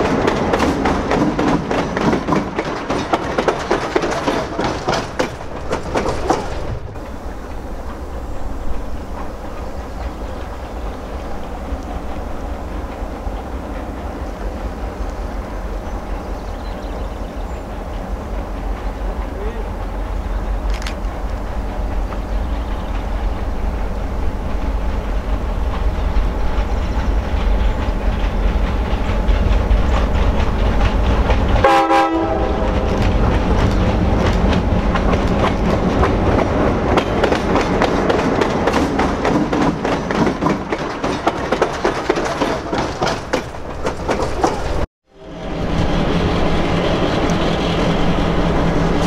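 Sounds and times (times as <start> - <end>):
diesel locomotive engine rumble: 0.0 - 49.0
wheels clattering over rails: 0.0 - 49.0
train horn: 31.6 - 33.0.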